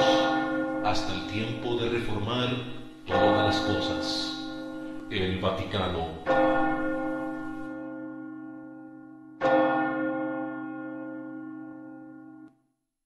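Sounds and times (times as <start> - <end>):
large church bell tolling: 0.0 - 12.5.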